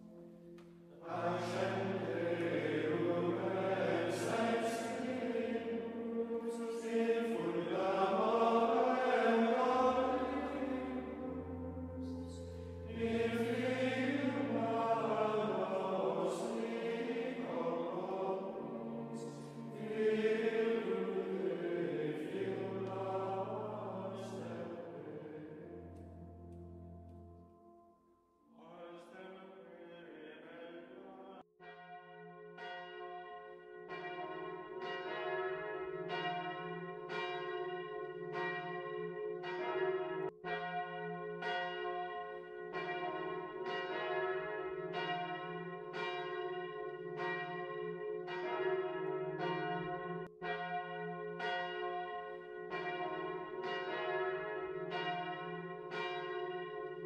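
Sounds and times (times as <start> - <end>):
church bells ringing: 0.0 - 27.9, 31.6 - 57.0
sung chant: 1.0 - 25.8.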